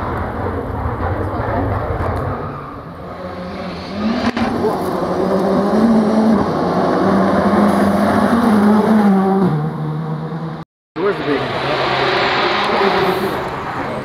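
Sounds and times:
rally car engine at high revs: 3.1s - 14.0s.

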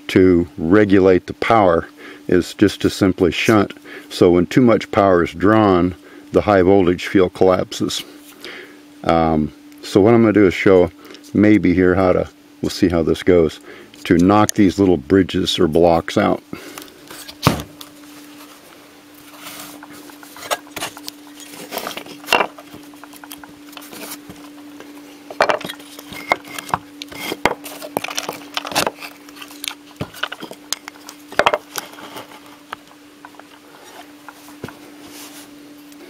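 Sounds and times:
faint hum: 0.0s - 36.0s
objects knocking on wooden workbench: 25.4s - 25.7s.

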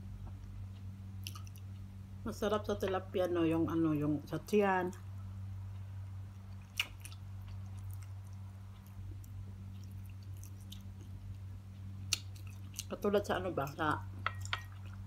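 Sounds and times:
low hum: 0.0s - 15.0s
person chewing food: 0.2s - 1.8s, 6.3s - 13.0s, 14.1s - 15.0s
wet mouth clicks: 6.6s - 8.4s.

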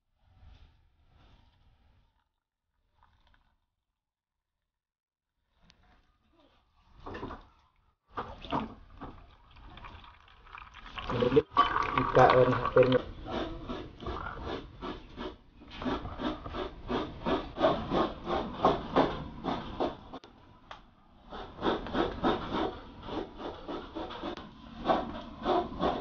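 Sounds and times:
rhythmic hand scraping: 12.0s - 20.2s, 21.3s - 26.0s.

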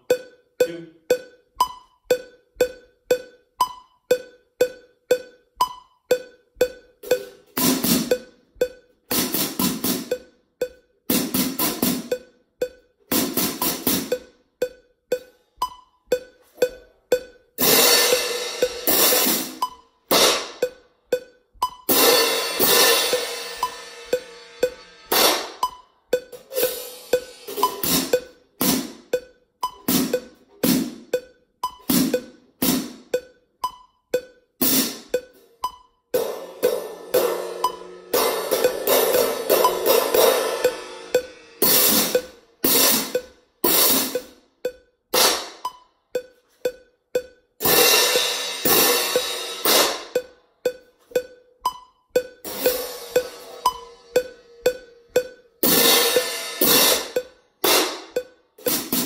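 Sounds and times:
faint steady ticking: 0.0s - 59.0s
crash cymbals struck by hand: 17.6s - 20.7s, 21.9s - 25.7s, 26.4s - 28.9s, 36.2s - 44.3s, 47.6s - 50.2s, 52.4s - 59.0s.

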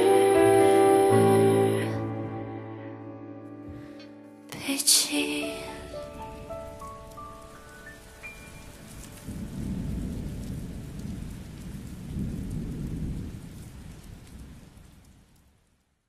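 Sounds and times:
rising musical notes: 0.0s - 9.2s
steady rain: 4.6s - 16.0s
low rolls of thunder: 5.8s - 15.7s.

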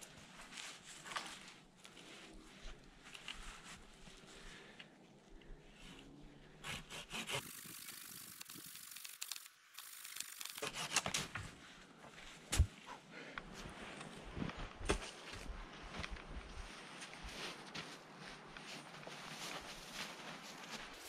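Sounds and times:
hand saw cutting wood: 6.6s - 11.3s.

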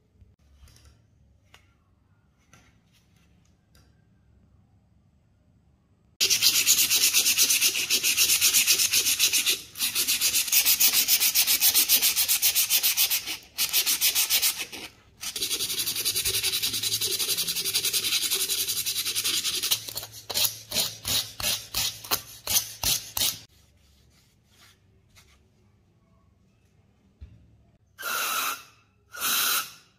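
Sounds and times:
sandpaper rubbing on metal: 6.2s - 23.5s.

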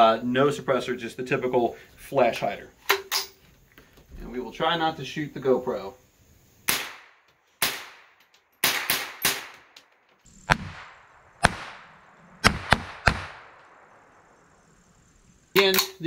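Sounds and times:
rifle shots echoing: 6.7s - 14.3s.

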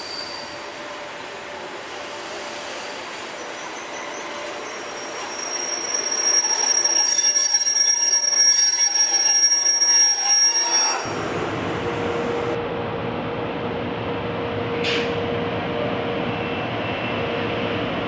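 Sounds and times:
freight train passing: 0.0s - 18.0s
high steady squeal: 1.9s - 11.3s.

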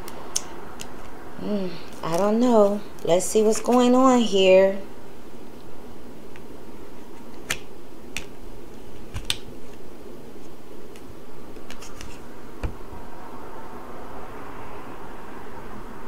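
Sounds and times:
cards clicking and snapping: 0.0s - 1.2s, 7.2s - 8.4s, 9.0s - 9.8s, 10.9s - 12.8s
low room hum: 0.0s - 16.0s.

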